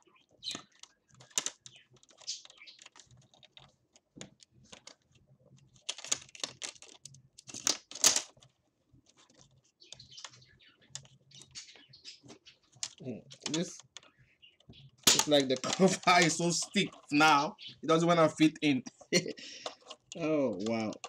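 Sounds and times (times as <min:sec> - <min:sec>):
plastic bezel clicks and scrapes: 0:19.6 - 0:21.0.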